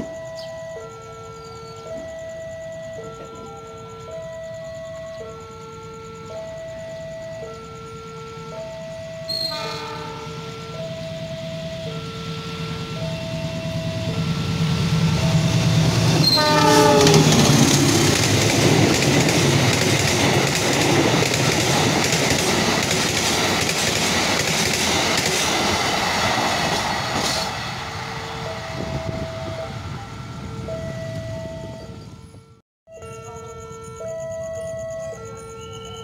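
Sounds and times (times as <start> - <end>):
diesel locomotive engine rumbling: 0.0 - 36.0
train horn blast: 8.7 - 19.8
train wheels clacking on rails: 12.9 - 27.7.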